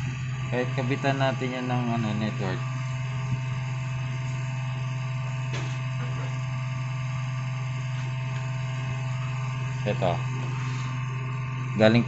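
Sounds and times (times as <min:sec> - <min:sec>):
computer fans humming: 0:00.0 - 0:12.0.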